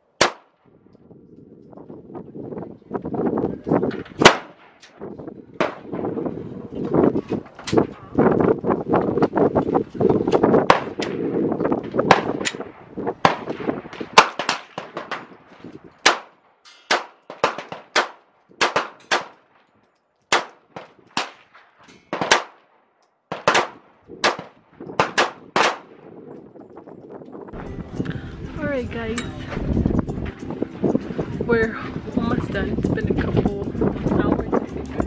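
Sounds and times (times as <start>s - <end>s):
pistol shots: 0.2s - 0.6s, 4.2s - 4.9s, 12.0s - 15.4s, 16.0s - 19.6s, 20.3s - 22.7s, 23.3s - 26.1s.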